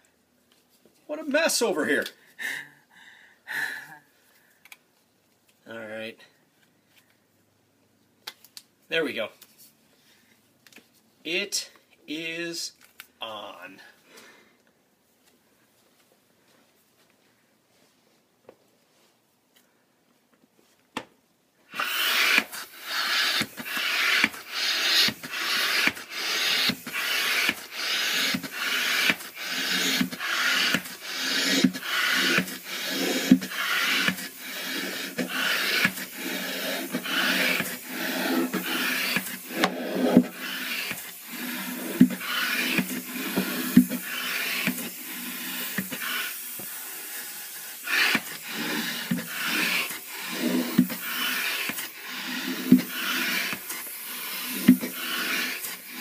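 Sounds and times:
hand air pump whooshing: 21.7 - 56.0.

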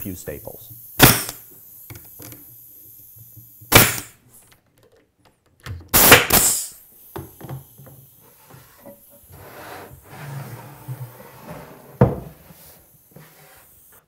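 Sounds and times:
stapler firing into wood: 1.0 - 2.4, 3.6 - 4.2, 5.9 - 7.6.

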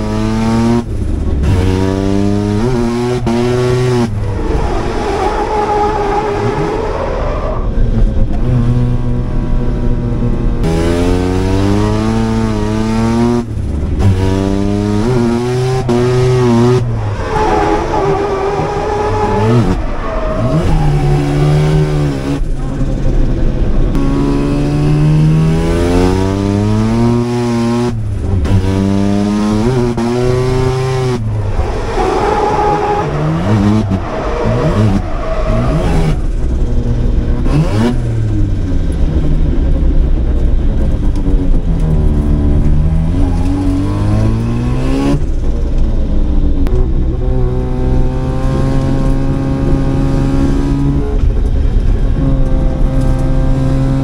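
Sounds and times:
rotary engine revving hard: 10.6 - 23.2, 23.9 - 36.7.

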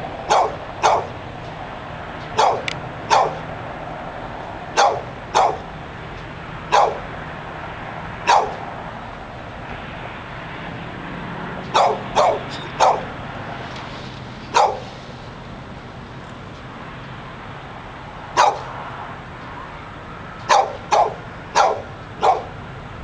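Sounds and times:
dog barking: 0.3 - 1.2, 2.4 - 3.4, 4.8 - 5.7, 6.7 - 7.1, 8.2 - 8.6, 11.7 - 13.1, 14.5 - 14.9, 18.4 - 18.7, 20.5 - 22.6.

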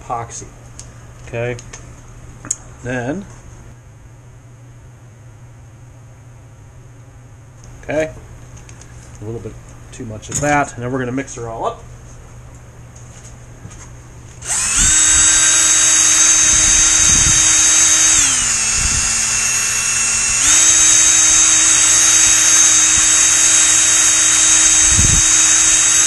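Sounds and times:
cordless drill motor whine: 14.4 - 26.0.

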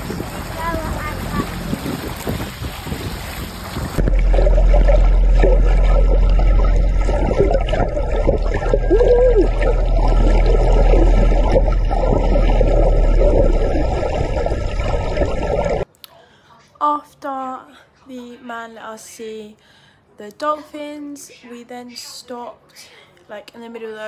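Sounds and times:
water sloshing and bubbling underwater: 0.0 - 15.9
steady low hum: 3.2 - 15.8.

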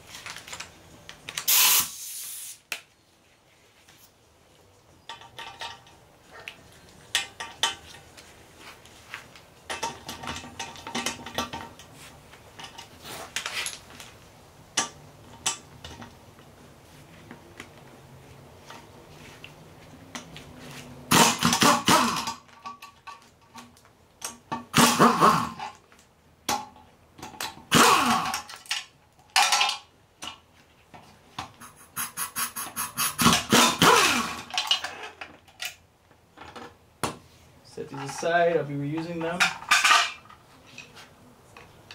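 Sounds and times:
pneumatic impact wrench hammering: 1.4 - 2.6, 21.1 - 22.4, 24.6 - 25.7, 27.7 - 28.5, 31.6 - 34.8.

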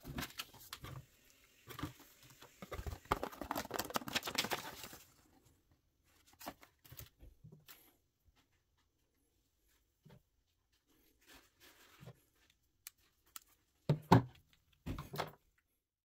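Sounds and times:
paper rustling and crinkling: 0.0 - 5.4, 6.1 - 7.9, 10.7 - 13.2.

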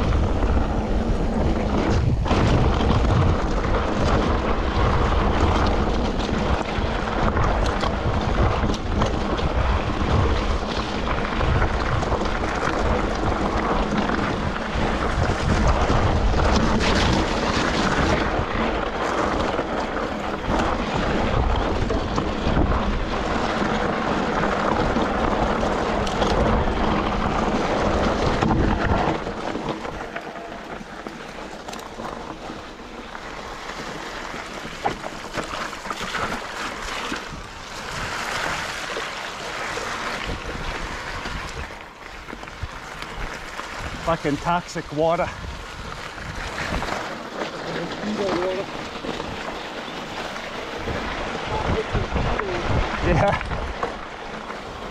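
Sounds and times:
wind buffeting microphone: 0.0 - 54.9.

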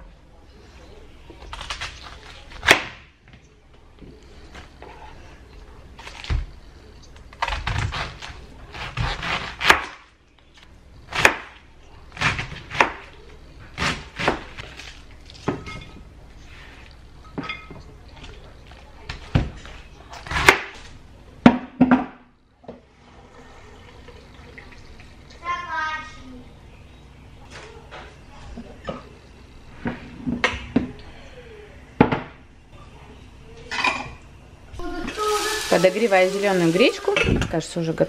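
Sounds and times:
knife chopping cabbage on plastic board: 7.4 - 10.0, 13.8 - 14.9.

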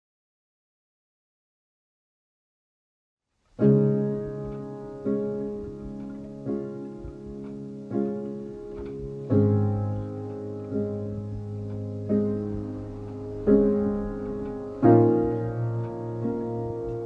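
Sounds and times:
slow sustained music chords: 3.8 - 17.0
deep bass note: 11.1 - 17.0.

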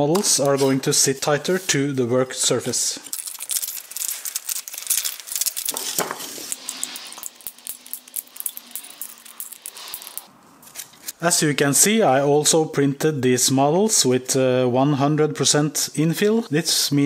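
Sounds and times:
plastic parts clicking and scraping: 3.0 - 11.2.

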